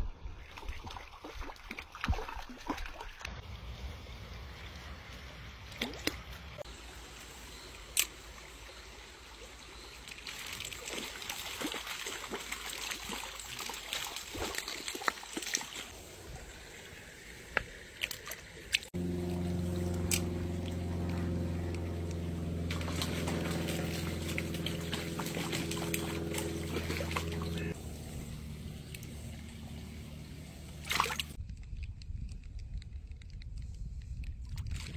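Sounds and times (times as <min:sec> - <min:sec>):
stream water trickling and sloshing: 0:00.0 - 0:31.4
sharp clicks and splashes: 0:00.4 - 0:03.4, 0:04.6 - 0:06.7, 0:07.6 - 0:08.9, 0:09.5 - 0:16.5, 0:17.2 - 0:34.9
steady low hum: 0:19.0 - 0:31.4.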